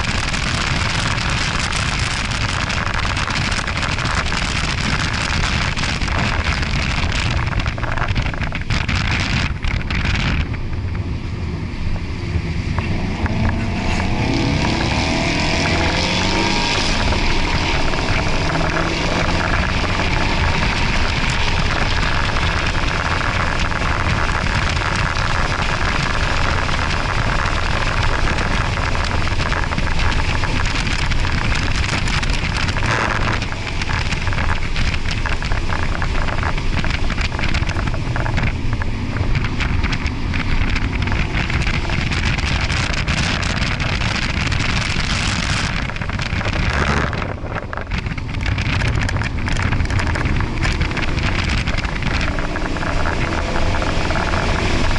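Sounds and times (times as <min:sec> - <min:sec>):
car engine running hard: 0:00.0 - 0:54.9
wind and road noise: 0:00.0 - 0:54.9.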